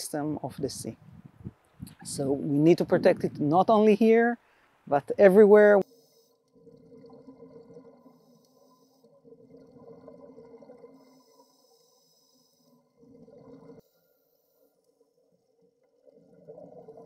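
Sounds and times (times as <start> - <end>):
underwater exhalation bubbles gurgling: 6.5 - 11.4, 12.9 - 13.8, 16.0 - 17.0.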